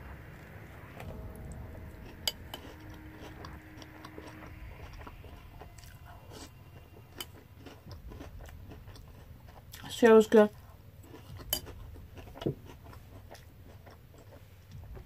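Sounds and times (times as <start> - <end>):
chewing cereal: 7.1 - 14.9.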